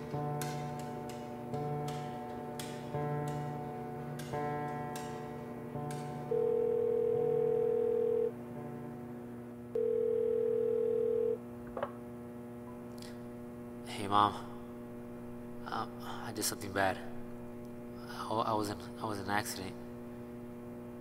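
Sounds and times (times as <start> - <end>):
plucked guitar music: 0.0 - 6.4
musical drone: 0.0 - 9.6
telephone ringing tones: 6.3 - 8.3, 9.8 - 11.4.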